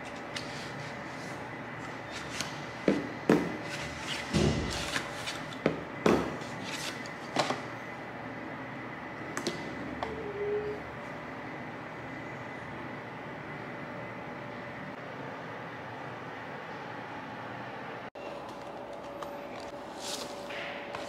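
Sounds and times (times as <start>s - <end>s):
paper rustling: 18.5s - 20.5s.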